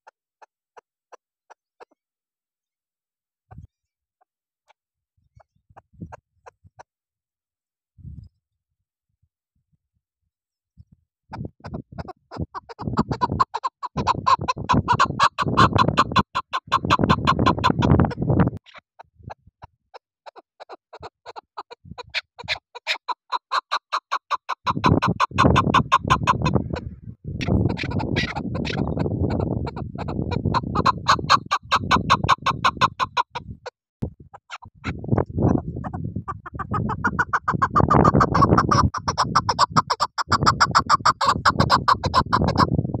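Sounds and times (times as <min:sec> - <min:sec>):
partridge clucking: 0:11.4 - 0:18.8, 0:27.4 - 0:33.4
partridge chuck calls: 0:11.6 - 0:18.8, 0:20.3 - 0:33.4, 0:34.3 - 0:42.7.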